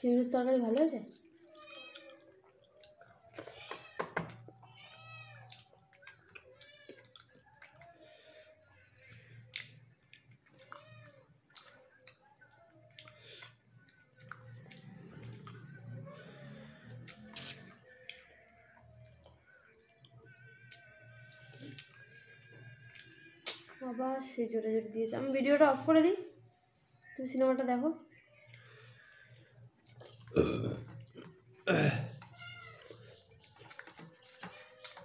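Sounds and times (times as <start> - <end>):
high-pitched meow-like cries: 1.4 - 2.4, 3.4 - 5.6, 32.3 - 32.9.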